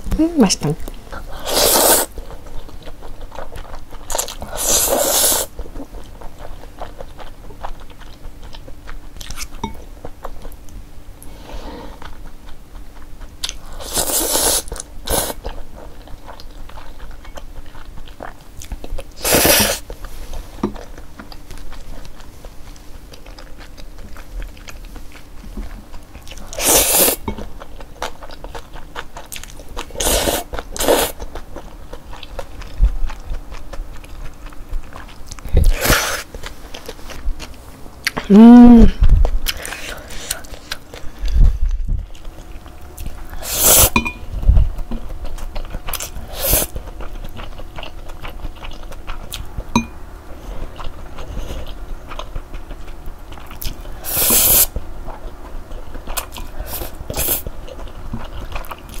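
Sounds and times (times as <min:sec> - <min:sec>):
wet chewing: 0:00.6 - 0:11.3, 0:11.9 - 0:38.3, 0:39.0 - 0:59.0
person slurping noodles: 0:01.4 - 0:02.2, 0:04.5 - 0:05.5, 0:13.8 - 0:15.4, 0:19.2 - 0:19.8, 0:26.6 - 0:27.2.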